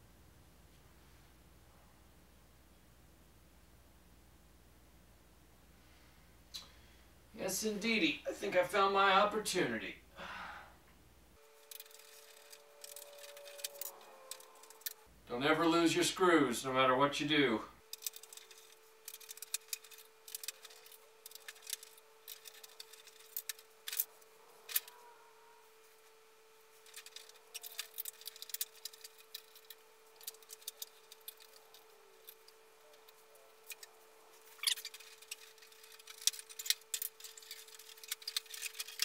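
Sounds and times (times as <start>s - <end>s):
faint steady hum: 0.0s - 39.0s
plastic toy parts clicking: 11.6s - 15.0s, 17.9s - 25.0s, 26.8s - 39.0s.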